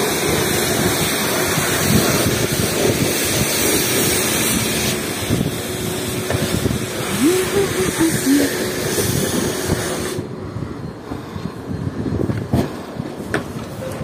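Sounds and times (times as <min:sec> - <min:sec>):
high-pressure spray hiss: 0:00.0 - 0:10.2
wind buffeting microphone: 0:00.0 - 0:13.8.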